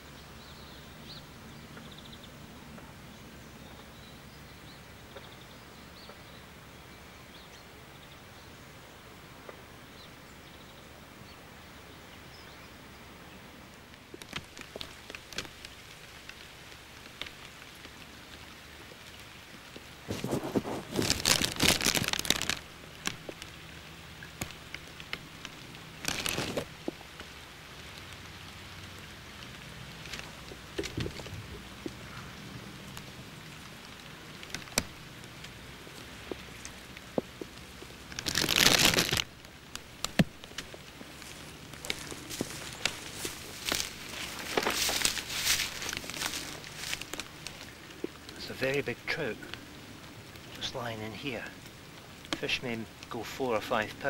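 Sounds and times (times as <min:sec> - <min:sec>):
rain crackling on plastic bag: 0:13.6 - 0:54.0.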